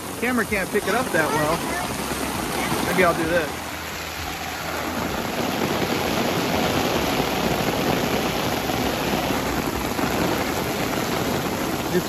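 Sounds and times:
heavy rain on pavement: 0:00.0 - 0:12.0.

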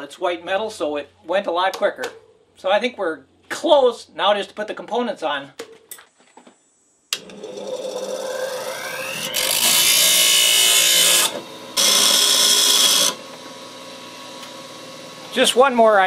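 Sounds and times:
bench grinder motor whine: 0:07.1 - 0:15.7.

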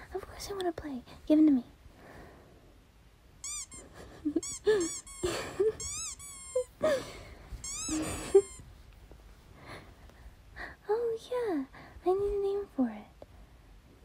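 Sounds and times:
squeaky toy squeaking: 0:03.4 - 0:06.8, 0:07.6 - 0:08.7.

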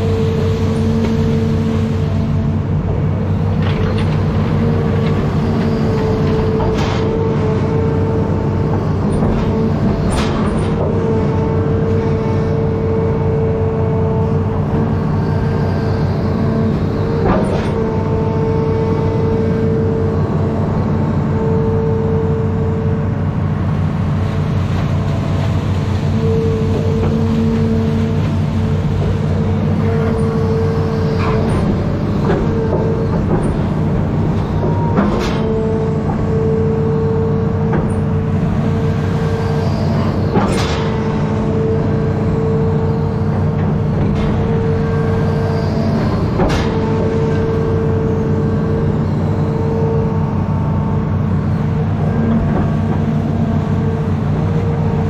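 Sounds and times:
excavator diesel engine digging: 0:00.0 - 0:55.0
steady high hum: 0:00.0 - 0:55.0.

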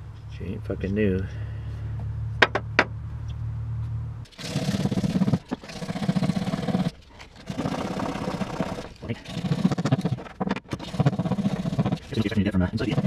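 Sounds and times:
low steady hum: 0:00.0 - 0:13.0
hand scraping steel panel: 0:04.3 - 0:13.0.

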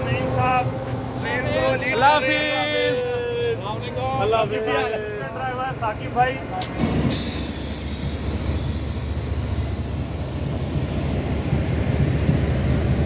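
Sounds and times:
train wheels rumbling on track: 0:00.0 - 0:13.0
high hiss: 0:07.1 - 0:12.2.

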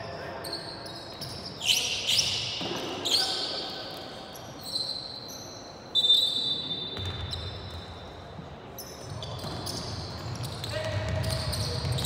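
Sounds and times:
sneakers squeaking on court: 0:00.0 - 0:12.0
basketball bouncing: 0:09.4 - 0:12.0.

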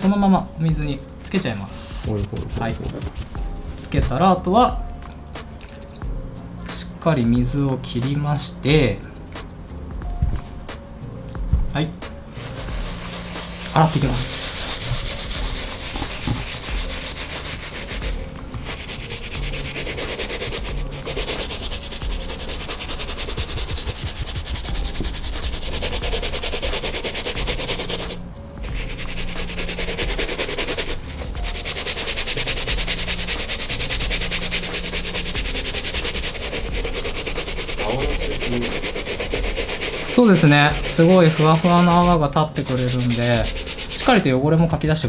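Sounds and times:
brush scrubbing leather shoe: 0:12.4 - 0:44.2.

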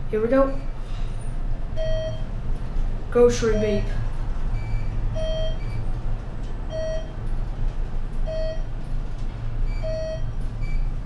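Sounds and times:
elevator car humming: 0:00.0 - 0:11.0
short electronic beep: 0:03.5 - 0:04.0, 0:04.6 - 0:05.8, 0:09.7 - 0:10.9.

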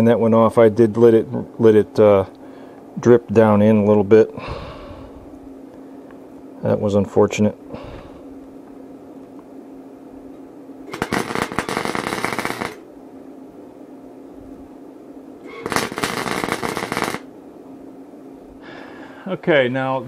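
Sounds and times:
steady low hum: 0:00.0 - 0:20.0
welding arc crackling and buzzing: 0:10.8 - 0:12.9, 0:15.4 - 0:17.3.

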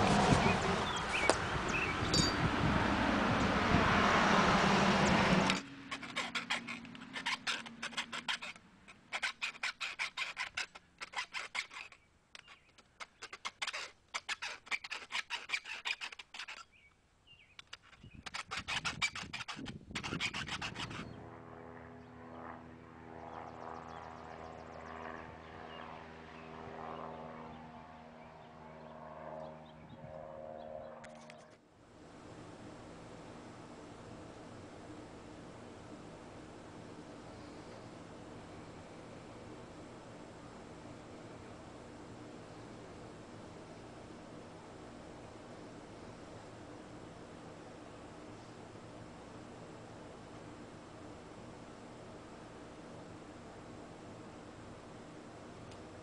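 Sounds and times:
loud rushing noise: 0:00.0 - 0:05.6
file rasping on steel: 0:05.5 - 0:16.7, 0:17.8 - 0:21.2
steady low hum: 0:20.5 - 0:56.0.

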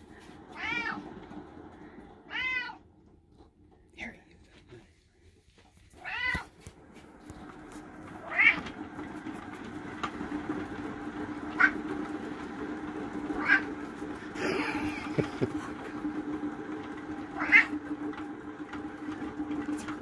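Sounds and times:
exercise wheel rumbling: 0:00.0 - 0:20.0
cat meowing: 0:00.6 - 0:01.0, 0:02.3 - 0:02.8, 0:06.0 - 0:06.5, 0:08.2 - 0:08.6, 0:17.4 - 0:17.7.

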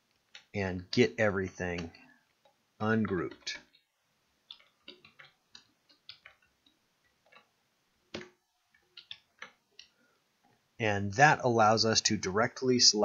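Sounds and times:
mouse and keyboard clicks: 0:01.7 - 0:03.9, 0:04.5 - 0:07.5, 0:08.1 - 0:09.9.

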